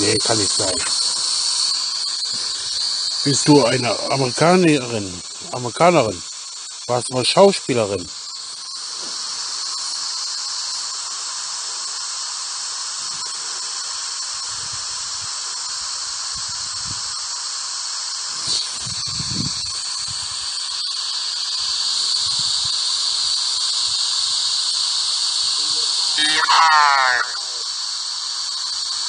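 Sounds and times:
radio static hiss: 0:00.0 - 0:12.1, 0:18.3 - 0:19.0, 0:25.4 - 0:29.0.

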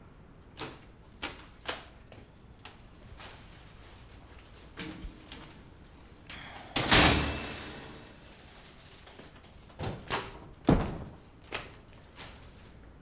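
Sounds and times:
door banging: 0:06.8 - 0:08.2.

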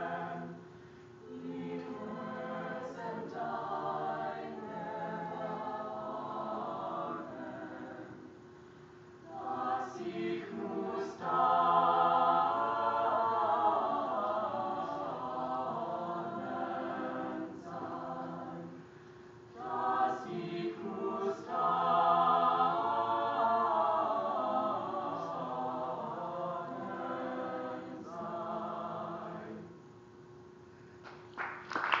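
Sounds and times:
choir singing a cappella: 0:00.0 - 0:08.4, 0:09.2 - 0:29.9.

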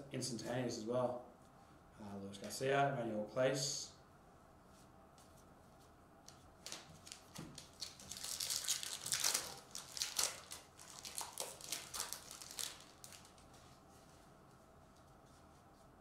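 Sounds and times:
foil wrapper crinkling as torn open: 0:06.7 - 0:13.5.

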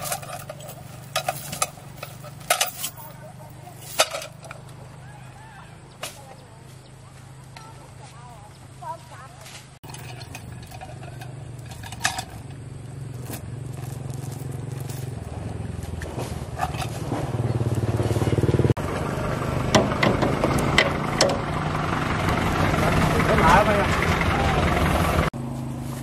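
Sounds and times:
tow chain clinking and rattling: 0:00.0 - 0:05.0, 0:09.8 - 0:15.8, 0:16.5 - 0:17.4
vehicle engine running: 0:00.0 - 0:26.0.

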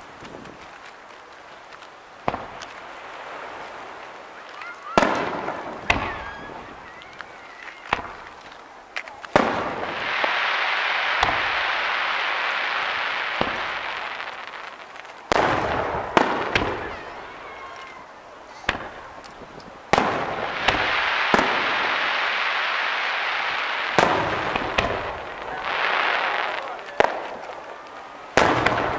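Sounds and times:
firework crackling hiss: 0:00.0 - 0:28.9
firework shells bursting: 0:02.2 - 0:28.9.

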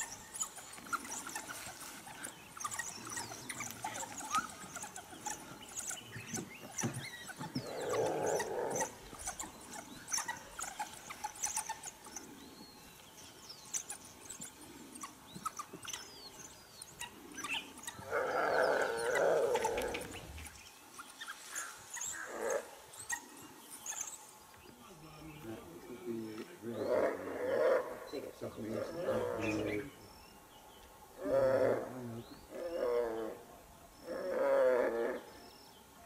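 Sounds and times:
wild dogs squeaking twitters: 0:00.0 - 0:12.4, 0:13.6 - 0:24.3
loud animal cry: 0:07.4 - 0:09.5, 0:18.0 - 0:20.2, 0:28.7 - 0:29.7.

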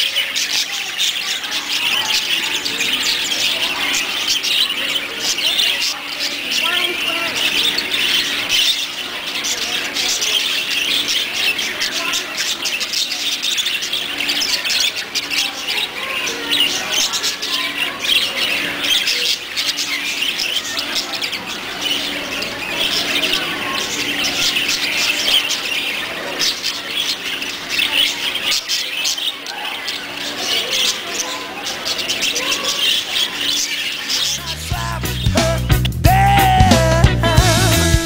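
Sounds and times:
small birds chirping and chattering: 0:00.0 - 0:38.0.

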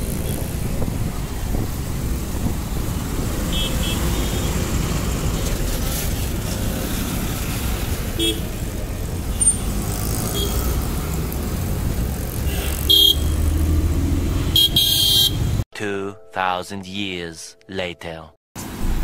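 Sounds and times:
road traffic rumble: 0:00.0 - 0:15.6, 0:18.6 - 0:19.0
vehicle horn toots: 0:03.5 - 0:04.6, 0:08.2 - 0:08.5, 0:10.3 - 0:10.8, 0:12.5 - 0:13.4, 0:14.5 - 0:15.6.

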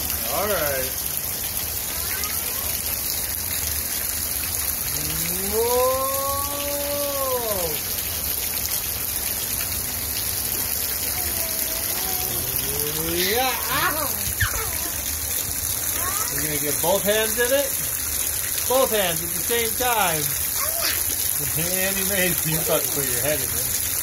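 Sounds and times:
water splattering from overhang: 0:00.0 - 0:24.0
long drawn-out voice: 0:04.8 - 0:07.9, 0:11.2 - 0:15.0.

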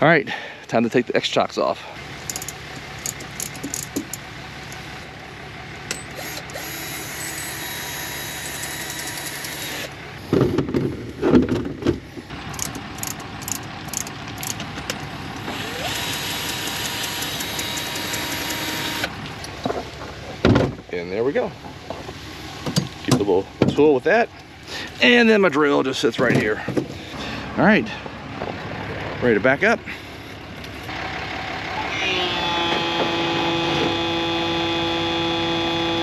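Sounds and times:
power drill running: 0:06.1 - 0:10.0, 0:15.5 - 0:19.1.

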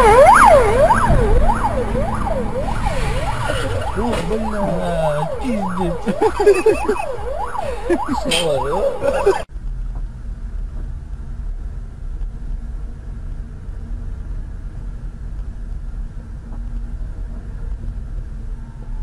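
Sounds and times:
car engine rumble: 0:00.0 - 0:19.0
road noise: 0:00.0 - 0:19.0.

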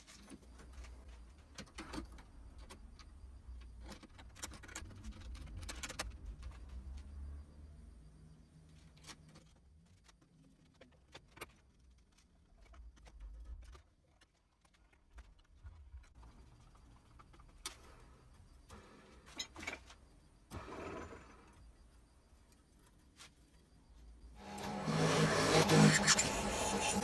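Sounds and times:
brief scraping: 0:24.4 - 0:27.0.

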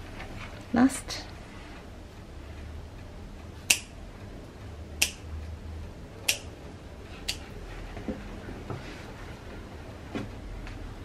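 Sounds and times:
nail clipper snipping: 0:03.7 - 0:03.9, 0:06.3 - 0:06.5.

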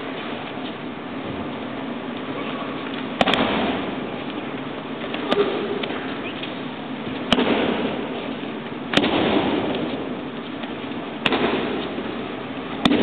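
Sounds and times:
hall background hum: 0:00.0 - 0:13.0
body slapping mats: 0:03.2 - 0:04.4, 0:07.2 - 0:10.6, 0:11.2 - 0:12.2, 0:12.8 - 0:13.0.

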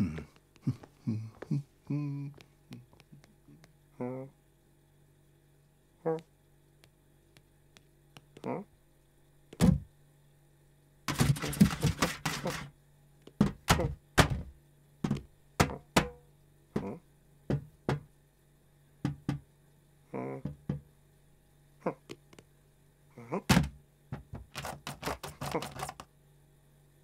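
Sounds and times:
knocks on a box: 0:13.4 - 0:16.2, 0:19.0 - 0:19.4
rapid scratching taps: 0:24.2 - 0:26.1.

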